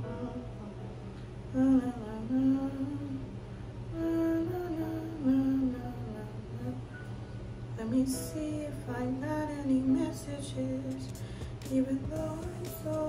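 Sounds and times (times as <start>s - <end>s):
woman humming a slow tune: 0.0s - 3.2s, 3.9s - 6.8s
steady low hum: 0.0s - 13.0s.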